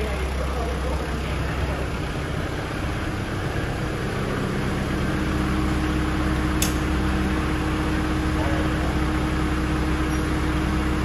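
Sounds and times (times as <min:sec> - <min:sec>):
diesel tractor engine idling: 0:00.0 - 0:11.0
sharp click: 0:06.6 - 0:06.8.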